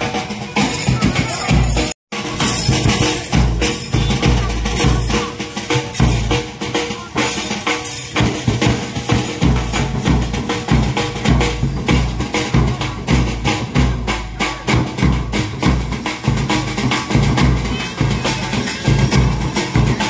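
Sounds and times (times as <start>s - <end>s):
metallic jangling strikes: 0.6s - 6.5s.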